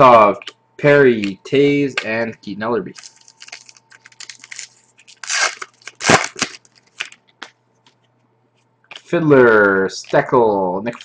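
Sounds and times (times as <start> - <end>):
wrapper crackling and ripping: 2.9 - 7.4.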